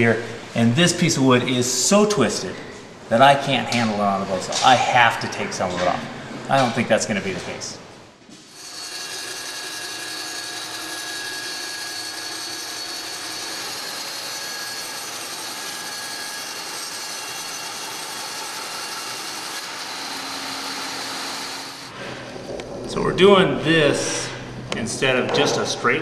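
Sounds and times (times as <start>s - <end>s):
band saw cutting wood: 8.5s - 21.9s.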